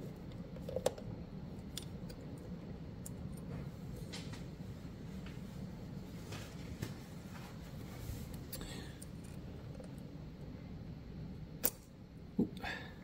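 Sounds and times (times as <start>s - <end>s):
low shop hum: 0.0s - 13.0s.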